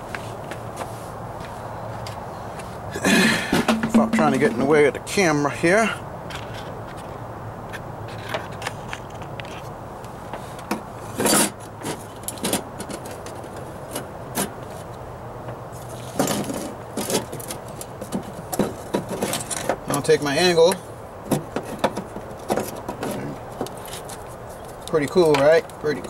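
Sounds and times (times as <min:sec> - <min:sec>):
metal rattle: 0:03.4 - 0:04.8
metallic clinks and scrapes: 0:11.0 - 0:14.5.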